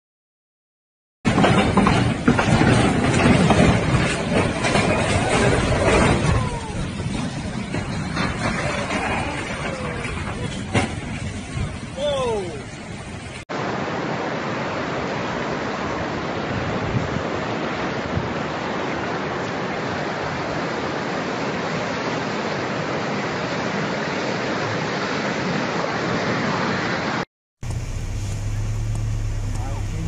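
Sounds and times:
rushing floodwater: 0:01.3 - 0:27.2.

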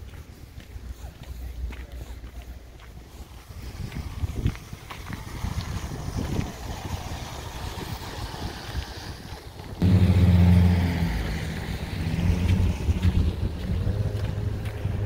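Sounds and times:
street traffic: 0:00.0 - 0:15.0
vehicle engine humming: 0:02.5 - 0:15.0
wind on microphone: 0:03.2 - 0:15.0.

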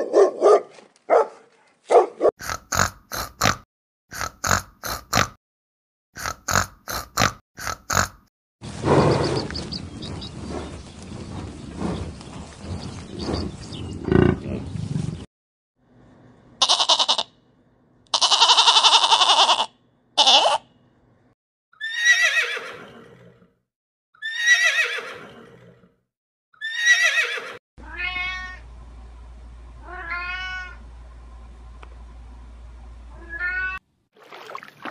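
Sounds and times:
horse whinnying: 0:21.8 - 0:23.5, 0:24.2 - 0:25.9, 0:26.6 - 0:27.6
cat meowing: 0:27.8 - 0:28.6, 0:29.8 - 0:30.8, 0:33.1 - 0:33.8.

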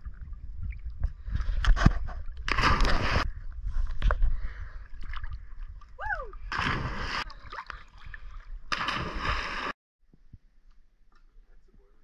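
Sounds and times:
rushes of water: 0:00.0 - 0:03.3, 0:04.3 - 0:09.8
lake water sloshing and gurgling: 0:00.0 - 0:09.8.

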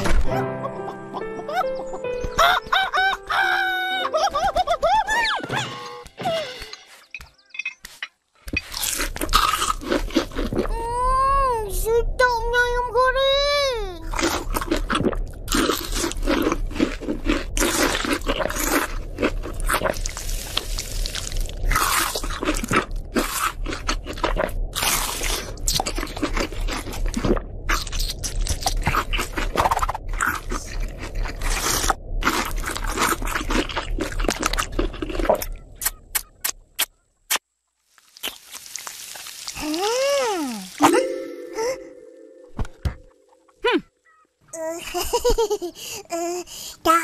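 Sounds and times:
crunchy chewing: 0:08.5 - 0:10.8, 0:14.0 - 0:39.7.

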